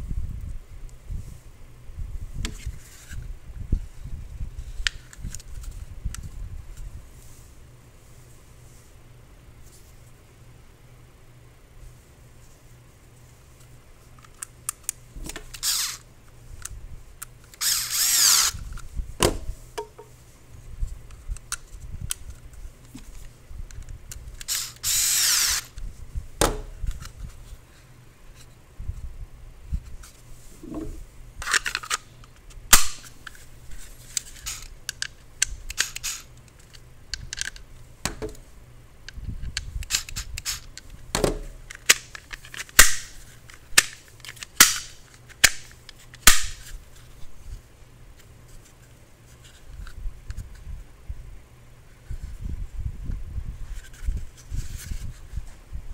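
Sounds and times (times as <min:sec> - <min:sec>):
pistol snapping into holster clicks: 0:41.7 - 0:46.6.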